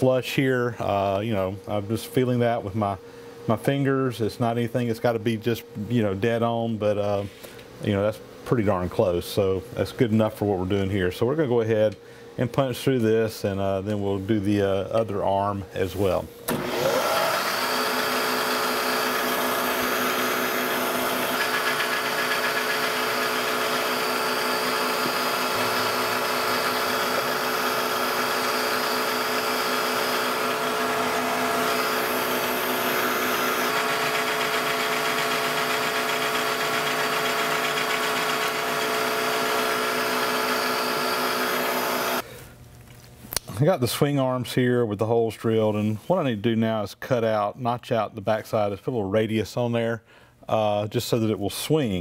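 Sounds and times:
drill press drilling metal: 16.5 - 42.2.

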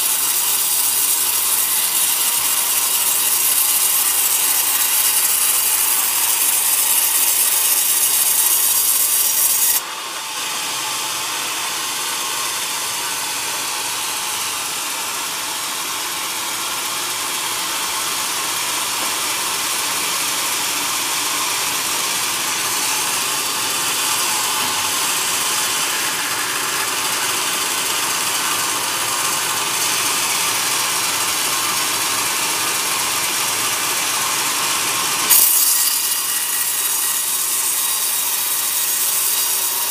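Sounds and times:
band saw ripping through log: 34.9 - 39.9.

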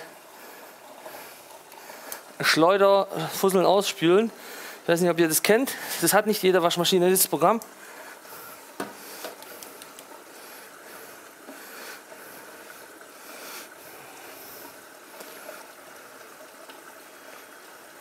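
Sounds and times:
faint clicks: 1.7 - 2.3, 9.2 - 10.2.

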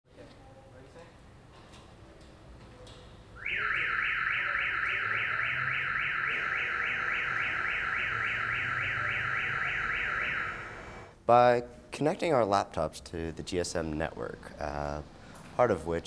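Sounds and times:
car alarm siren warbling: 3.4 - 11.1.

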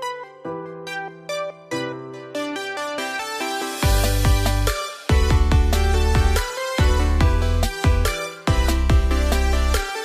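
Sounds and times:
electronic music with melody: 0.0 - 10.0
deep bass: 3.8 - 9.8.

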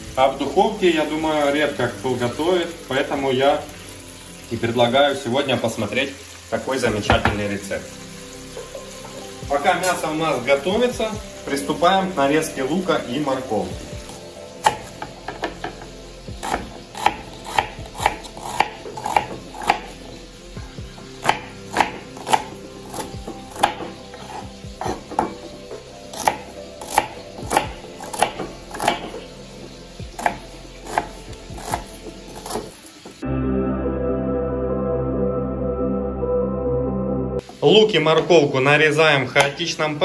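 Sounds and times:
knife chopping on wooden board: 16.4 - 19.8, 21.2 - 22.5, 23.6 - 25.4, 26.1 - 29.2, 30.2 - 32.7.

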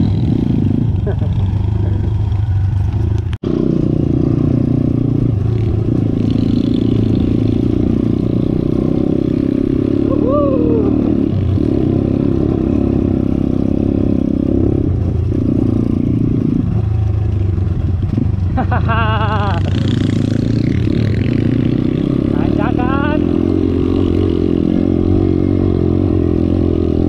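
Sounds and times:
motorbike engine revving: 0.0 - 27.0.

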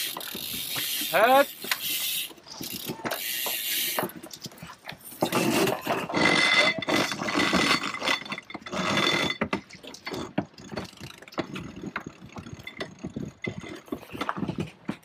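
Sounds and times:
winch ratcheting clicks: 0.0 - 4.7.

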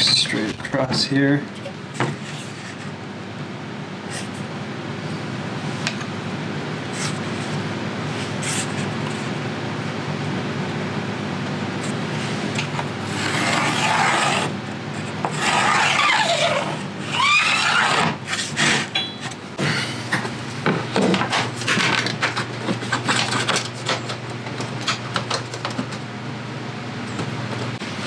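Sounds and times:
tool scraping plywood: 12.6 - 18.9.

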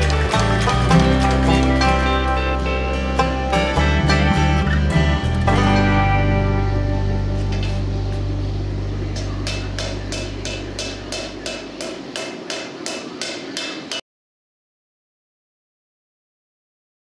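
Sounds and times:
background music: 0.0 - 11.6
hammer striking steel on anvil: 9.2 - 14.0.

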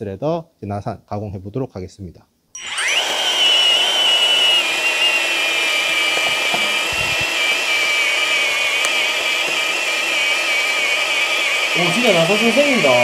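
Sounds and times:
pipe threader motor whining: 2.6 - 13.0.

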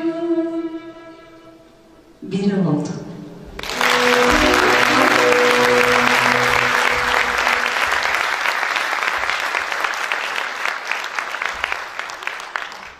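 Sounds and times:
ensemble holding last note: 3.6 - 8.4
audience applauding: 3.6 - 12.9.

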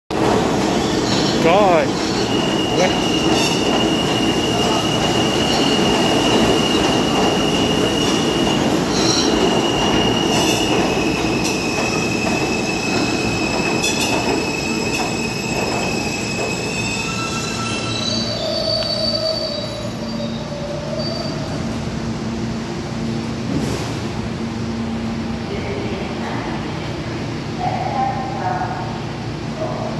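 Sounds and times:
train wheels rumbling on track: 0.1 - 19.8
high wheel squeal: 0.7 - 21.6.

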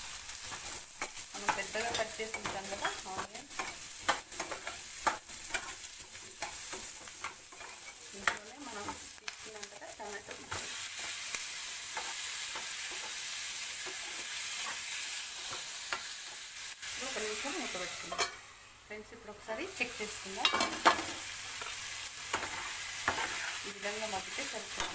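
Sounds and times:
food sizzling in a pan: 0.0 - 24.9
spatula scraping a pan: 0.4 - 9.2, 20.4 - 23.7.

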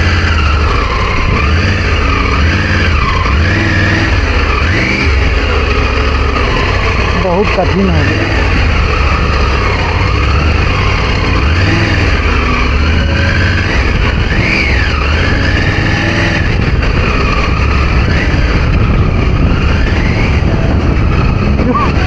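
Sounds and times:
motorcycle engine low rumble: 0.0 - 22.0.

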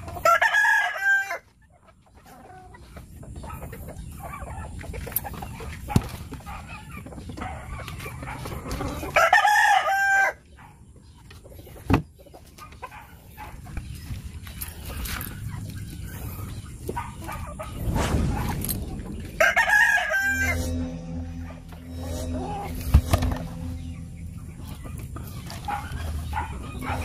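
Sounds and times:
rooster crowing: 0.2 - 1.4, 9.1 - 10.4.

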